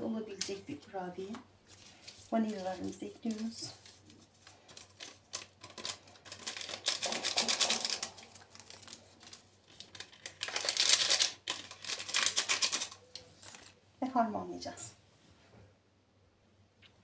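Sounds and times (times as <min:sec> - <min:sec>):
paper sachets crinkling: 0:01.2 - 0:13.8.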